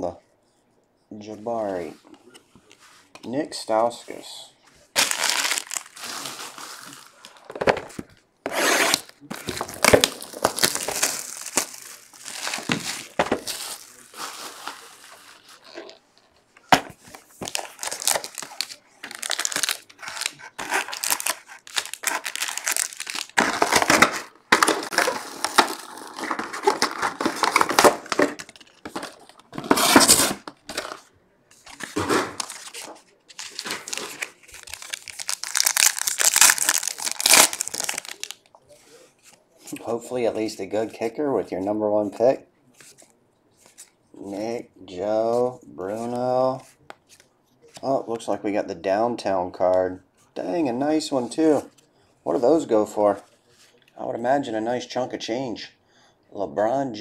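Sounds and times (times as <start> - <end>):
wrappers tearing and crinkling: 5.0 - 7.5, 8.5 - 16.0, 17.4 - 31.0, 31.7 - 38.5.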